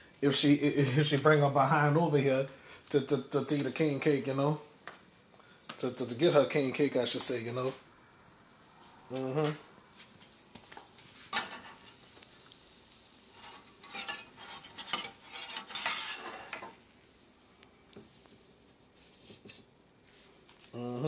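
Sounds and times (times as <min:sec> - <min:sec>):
faint pan sizzle: 0:05.4 - 0:20.5
spatula scraping frying pan: 0:11.2 - 0:17.3.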